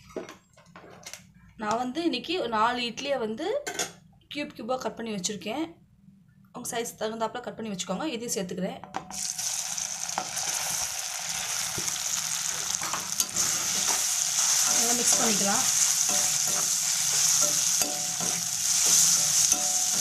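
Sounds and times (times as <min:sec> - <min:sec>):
food sizzling in oil: 0:09.1 - 0:20.0
metal ladle scraping pan: 0:12.8 - 0:20.0.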